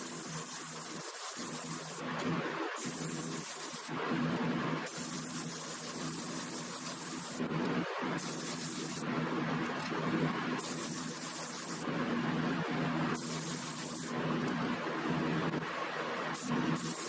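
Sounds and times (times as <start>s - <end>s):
spray gun hissing: 0.0s - 2.0s, 2.8s - 4.0s, 4.9s - 7.4s, 8.2s - 9.0s, 10.6s - 11.9s, 13.2s - 14.2s, 16.4s - 17.0s.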